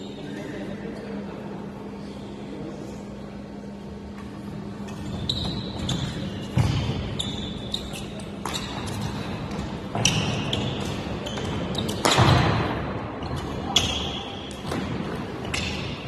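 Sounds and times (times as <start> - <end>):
steady low hum: 0.0 - 16.0
sneakers squeaking on court floor: 4.4 - 16.0.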